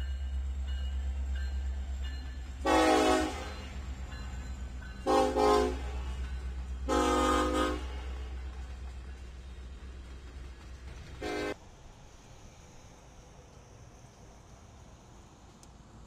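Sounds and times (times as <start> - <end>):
locomotive air horn blasts: 2.6 - 3.7, 5.0 - 6.1, 6.9 - 8.3, 11.2 - 11.6.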